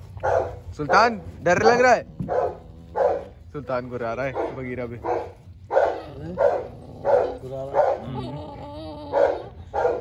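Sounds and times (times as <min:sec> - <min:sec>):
dog barking: 0:00.2 - 0:01.0, 0:02.3 - 0:03.3, 0:04.3 - 0:08.1, 0:09.1 - 0:10.0.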